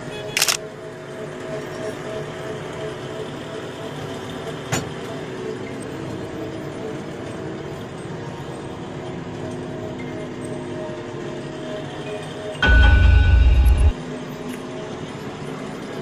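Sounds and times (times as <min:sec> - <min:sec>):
diesel engine running: 0:12.6 - 0:13.9.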